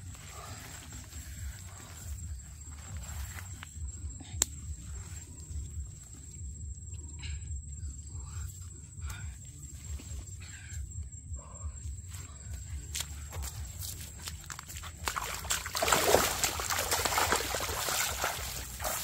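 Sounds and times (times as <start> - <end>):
high insect whine: 0.0 - 19.0
hands handling in wet mud: 12.5 - 19.0.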